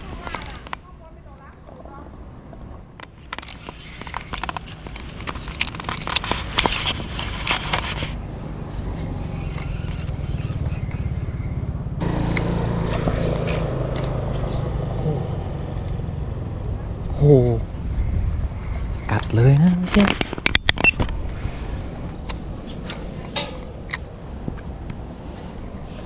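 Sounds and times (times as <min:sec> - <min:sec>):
sharp clicks and crackles: 0:02.5 - 0:08.2
vehicle engine running: 0:08.1 - 0:17.8.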